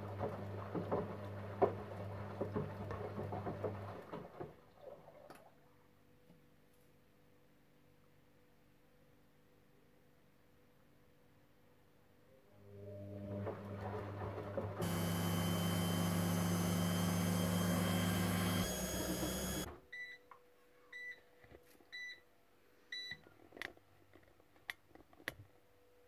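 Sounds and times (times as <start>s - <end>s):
washing machine humming and rushing: 0.0s - 4.6s, 12.7s - 19.7s.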